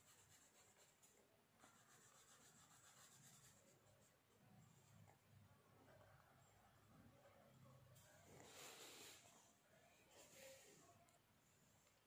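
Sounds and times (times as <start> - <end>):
felt-tip pen scratching on paper: 1.6 - 3.8.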